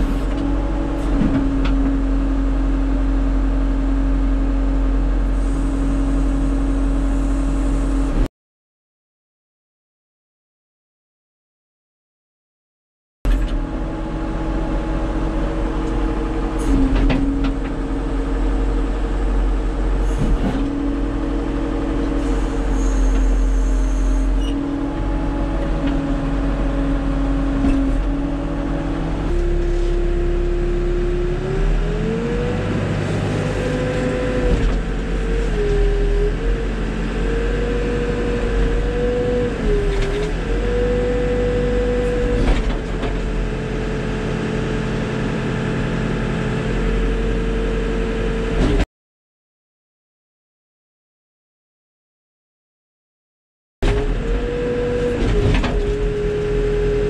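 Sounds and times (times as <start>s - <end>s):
diesel engine running: 0.0s - 8.3s, 13.4s - 48.7s.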